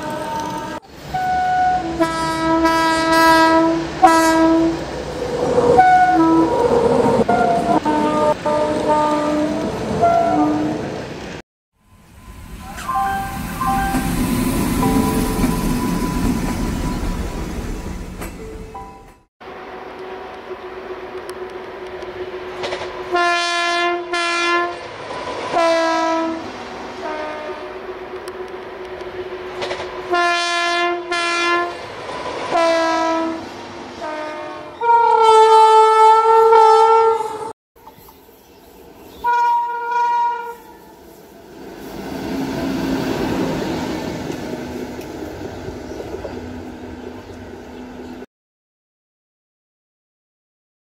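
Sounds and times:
train horn blasts: 0.0s - 4.9s, 5.7s - 10.9s, 22.1s - 24.9s, 25.5s - 28.4s, 30.0s - 31.8s, 32.5s - 37.5s, 39.2s - 41.1s
train rumbling on track: 0.0s - 48.3s.

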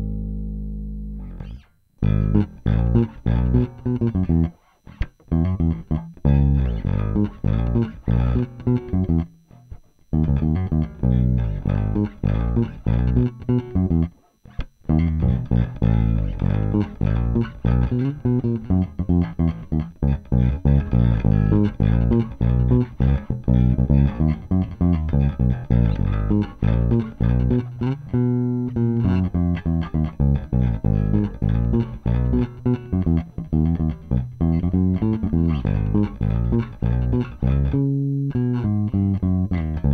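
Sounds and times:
ringing bass chord: 0.0s - 14.2s, 14.8s - 39.9s
plucked bass guitar line: 0.0s - 39.9s.

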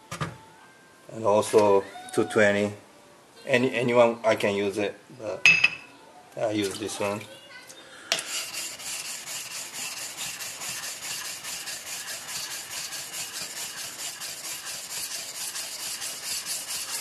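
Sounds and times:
stone scraping on whetstone: 8.1s - 17.0s.

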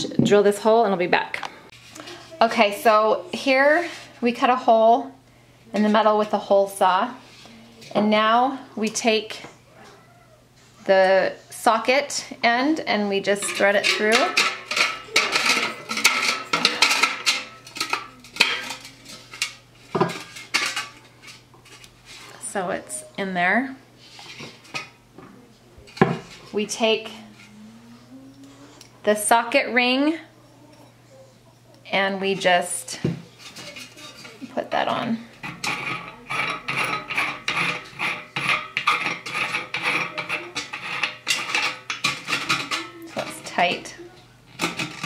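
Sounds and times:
socket ring rasping scrapes: 35.4s - 43.3s.

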